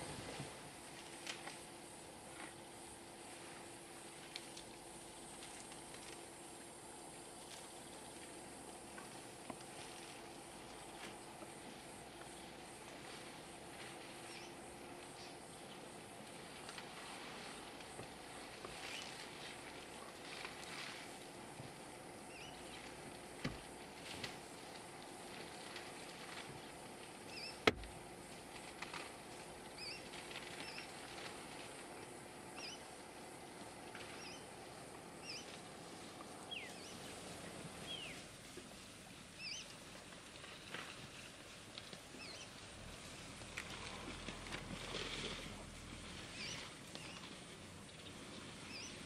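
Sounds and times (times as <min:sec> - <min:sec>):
soft rustles of palm fronds: 0:00.0 - 0:49.0
dry vegetation rustling and snapping: 0:01.0 - 0:01.7, 0:22.8 - 0:32.2
bird chirping: 0:22.3 - 0:22.7, 0:27.3 - 0:27.6, 0:32.6 - 0:32.9, 0:34.2 - 0:34.5, 0:35.2 - 0:35.5, 0:39.4 - 0:39.7, 0:42.2 - 0:42.5, 0:47.9 - 0:49.0.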